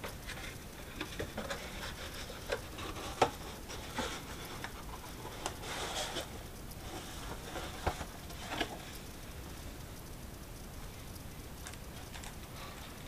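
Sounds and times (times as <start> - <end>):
cardboard rustling and tapping: 0.0 - 9.0.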